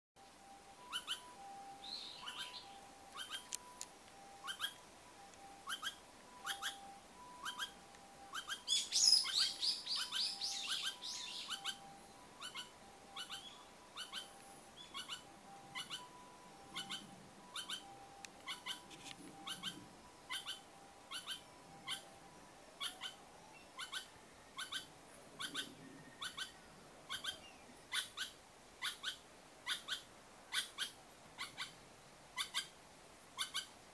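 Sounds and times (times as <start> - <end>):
bird singing: 0.2 - 31.8, 33.4 - 33.7
squirrel calling: 0.4 - 33.8.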